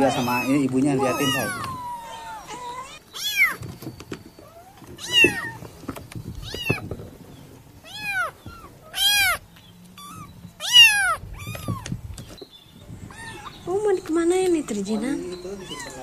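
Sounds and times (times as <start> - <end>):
kitten meowing: 0.0 - 3.6, 4.4 - 5.6, 6.4 - 6.8, 7.8 - 9.4, 10.0 - 12.0, 13.1 - 13.7, 15.5 - 16.0.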